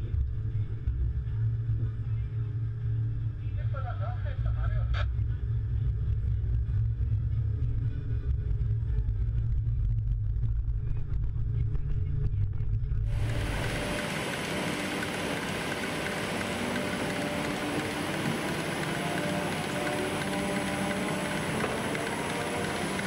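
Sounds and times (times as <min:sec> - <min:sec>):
machine engine deep rumble: 0:00.0 - 0:23.0
hissy machine noise: 0:13.1 - 0:23.0.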